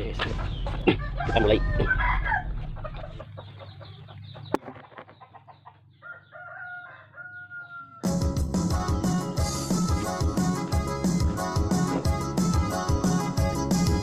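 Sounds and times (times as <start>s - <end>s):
chickens clucking: 0.0s - 8.0s
rooster crowing: 0.9s - 3.2s, 6.0s - 8.2s.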